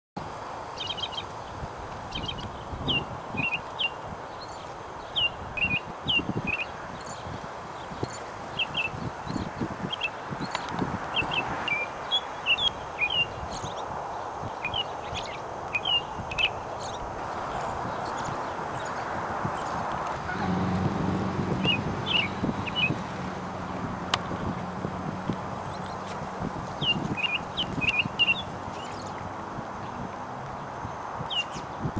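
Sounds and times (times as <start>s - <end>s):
robin singing whistled notes: 2.1s - 7.2s, 14.6s - 17.0s, 21.6s - 23.0s, 26.8s - 29.2s, 31.3s - 31.6s.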